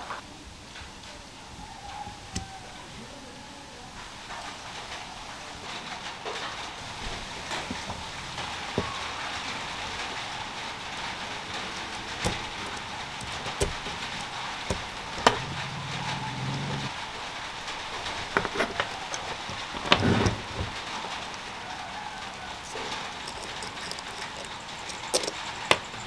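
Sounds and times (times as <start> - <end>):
steady hiss: 0.0 - 26.0
small metal and plastic clicks: 7.4 - 16.9, 18.0 - 20.0, 22.6 - 26.0.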